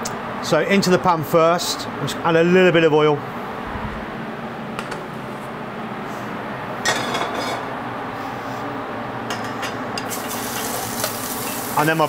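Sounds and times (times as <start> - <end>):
steady background hiss: 7.8 - 12.0.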